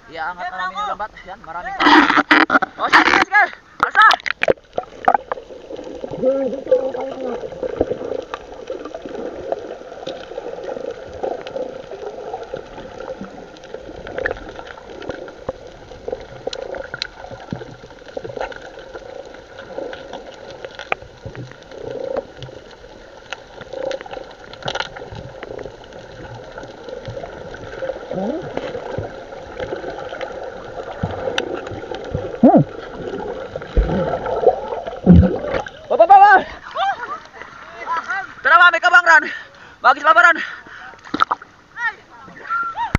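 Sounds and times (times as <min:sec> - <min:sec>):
seawater sloshing and gurgling: 0:01.7 - 0:38.5
small knocks and splashes: 0:41.0 - 0:41.5.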